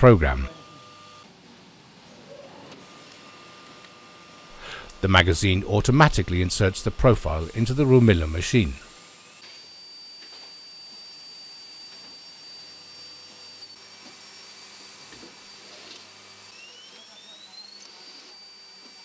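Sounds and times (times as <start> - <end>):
machine whining: 0.0 - 1.2, 2.7 - 13.8, 15.5 - 19.0.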